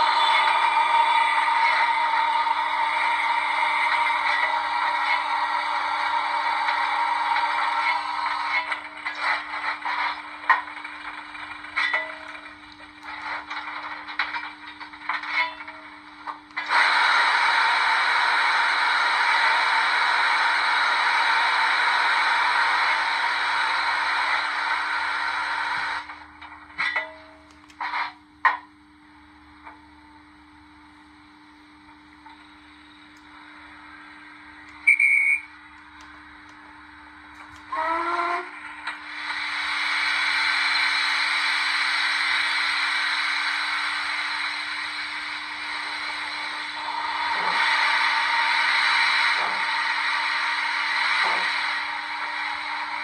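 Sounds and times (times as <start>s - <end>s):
steam locomotive hissing: 0.0s - 26.2s, 32.2s - 53.0s
steady low hum: 0.0s - 53.0s
high-pitched steam whistle blast: 34.8s - 35.6s, 37.7s - 38.5s.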